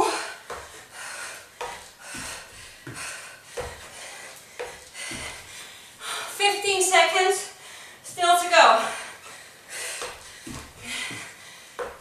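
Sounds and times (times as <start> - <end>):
hard breathing: 0.0 - 6.4, 7.5 - 12.0
feet thudding on wooden step: 0.4 - 0.9, 1.5 - 5.7, 9.9 - 12.0.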